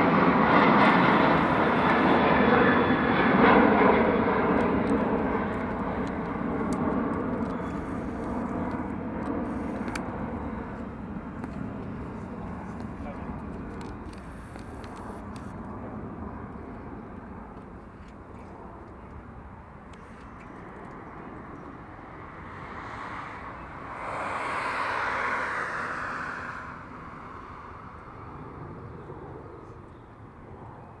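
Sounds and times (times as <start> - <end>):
distant jet engine roar: 0.0 - 31.0
rushing noise: 22.6 - 28.2.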